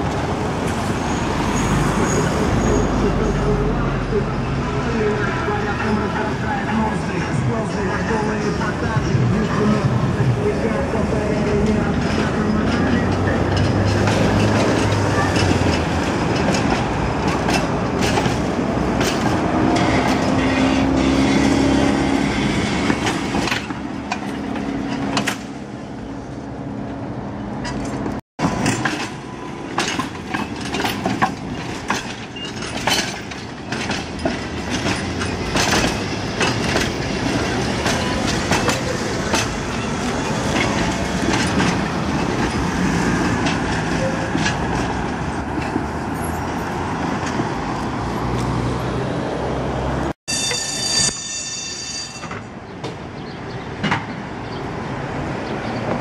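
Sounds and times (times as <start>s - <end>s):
wheels clacking over rail joints: 8.1s - 26.3s, 27.5s - 48.7s, 51.8s - 54.6s.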